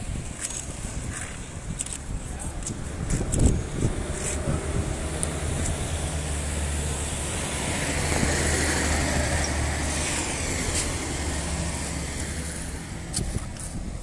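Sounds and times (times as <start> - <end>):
car driving past: 3.8 - 13.0.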